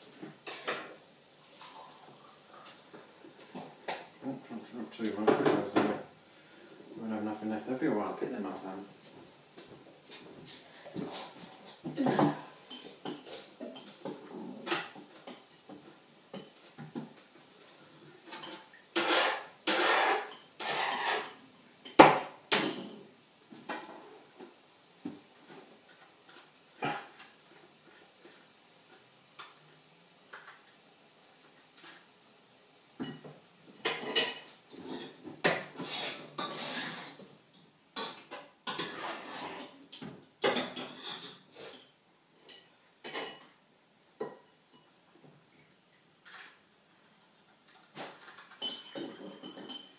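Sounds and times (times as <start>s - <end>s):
dishes and cutlery clinking: 0.4s - 1.0s, 11.0s - 17.2s, 18.2s - 24.0s, 33.0s - 43.6s, 44.2s - 45.0s, 47.7s - 49.9s
scraping noises: 18.3s - 21.4s, 34.7s - 37.2s, 38.7s - 39.8s.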